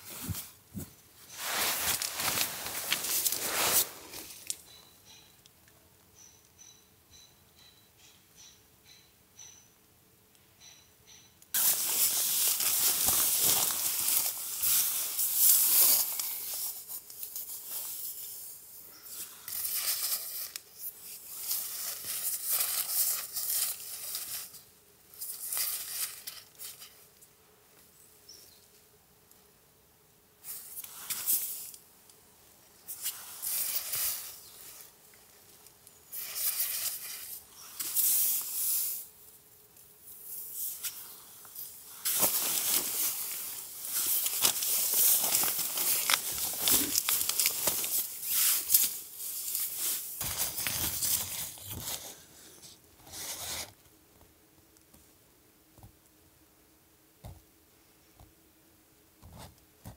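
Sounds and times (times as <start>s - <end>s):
rustling and crinkling: 0.0s - 5.3s, 11.5s - 27.9s, 30.4s - 55.1s.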